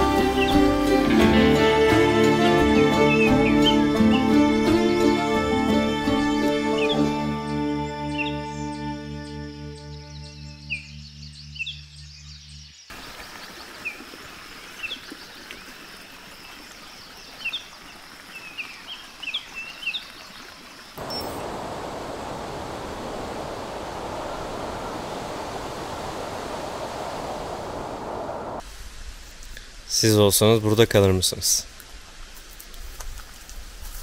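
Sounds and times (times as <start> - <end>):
music: 0.0 - 11.9
small birds chirping: 8.1 - 28.6
soft outdoor hiss: 11.6 - 34.0
loud rushing noise: 21.0 - 28.6.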